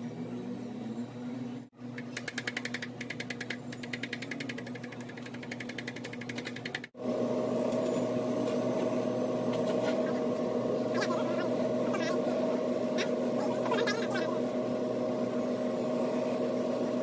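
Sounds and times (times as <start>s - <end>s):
buffing wheel machine humming: 6.9s - 17.0s.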